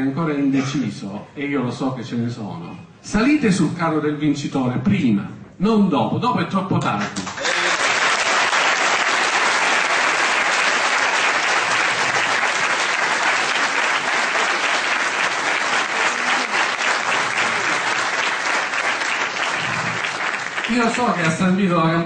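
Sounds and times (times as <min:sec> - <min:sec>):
audience applauding: 0:07.2 - 0:21.6.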